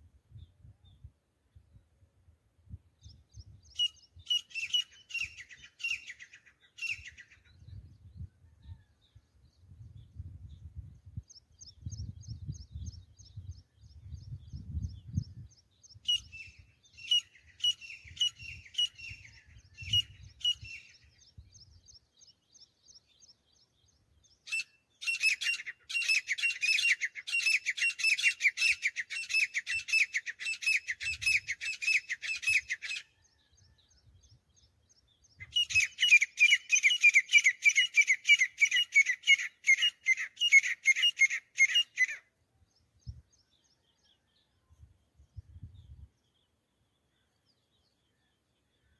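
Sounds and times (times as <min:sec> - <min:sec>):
bird calling shrill repeated notes: 0:03.7 - 0:07.4, 0:16.0 - 0:21.0, 0:24.4 - 0:33.2, 0:35.4 - 0:42.3.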